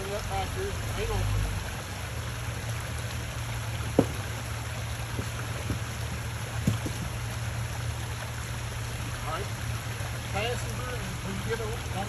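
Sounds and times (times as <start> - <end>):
short knocks: 3.9 - 4.4, 5.1 - 7.2.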